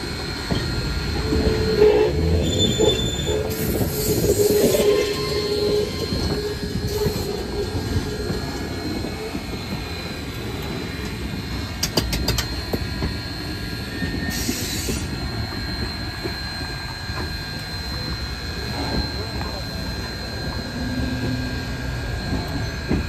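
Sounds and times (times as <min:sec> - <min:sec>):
steam hiss: 0:00.0 - 0:16.7
train wheels rumbling: 0:00.0 - 0:23.0
wheels squealing on rails: 0:00.0 - 0:23.0.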